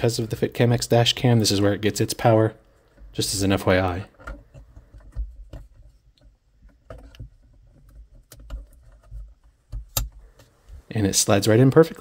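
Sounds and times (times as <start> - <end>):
plastic and cable bumping and rubbing: 2.9 - 10.9.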